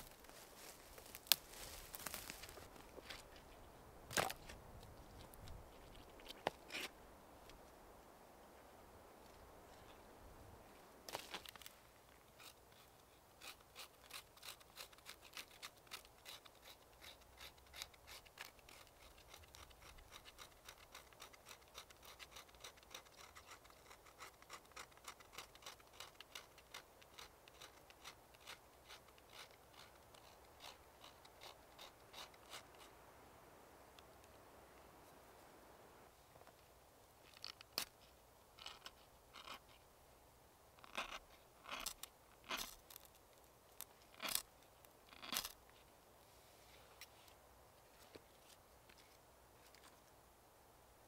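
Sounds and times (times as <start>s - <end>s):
knife scraping bark: 12.3s - 33.0s, 40.8s - 43.2s, 44.1s - 44.5s, 45.1s - 45.6s.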